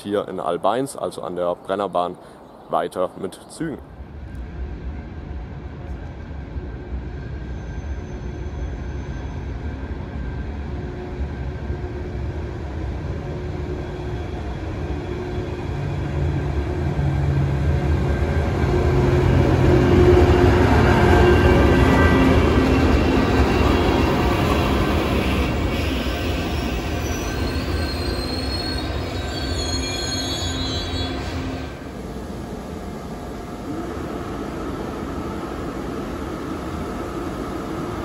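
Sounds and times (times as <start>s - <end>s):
electric train passing: 0.0s - 38.0s.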